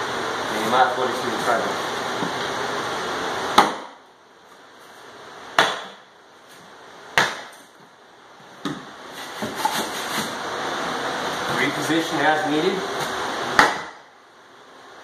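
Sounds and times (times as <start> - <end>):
sledgehammer striking wooden wedges: 3.5 - 4.0, 5.5 - 6.0, 7.1 - 7.7, 13.5 - 14.0.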